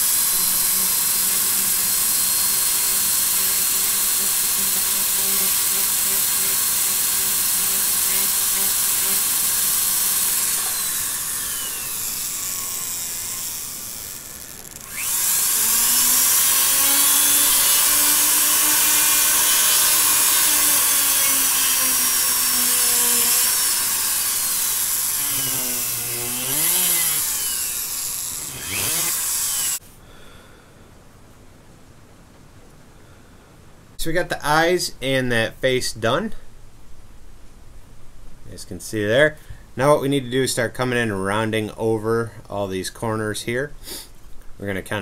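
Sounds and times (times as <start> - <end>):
rotary carver whining: 0.0 - 29.8.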